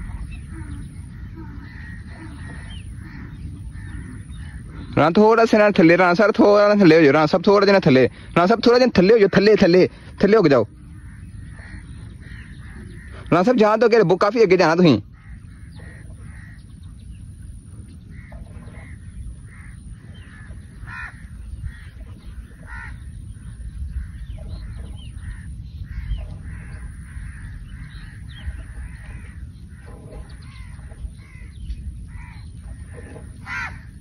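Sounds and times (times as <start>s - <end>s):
birds calling: 0.0s - 34.0s
low rumble of wind: 0.0s - 34.0s.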